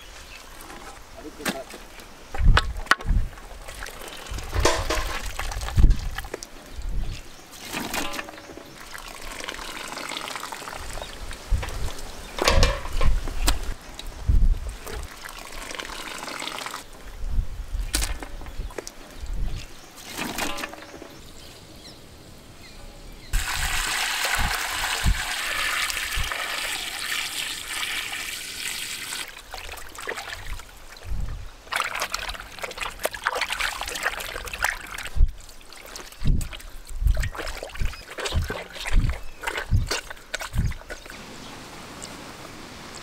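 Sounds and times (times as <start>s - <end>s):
water trickling and splashing in a basin: 0.0s - 17.2s, 17.8s - 21.2s, 23.4s - 41.3s.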